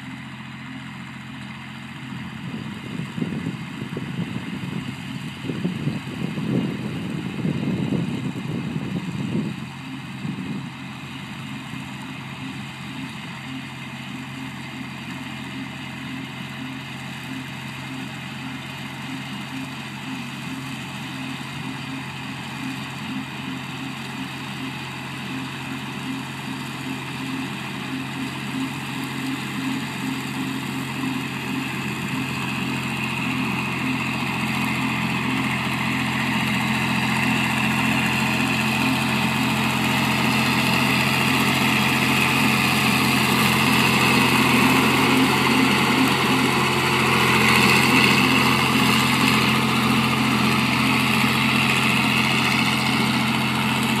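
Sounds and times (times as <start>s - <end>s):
tractor engine running: 0.0s - 54.0s
wind buffeting microphone: 2.5s - 9.6s.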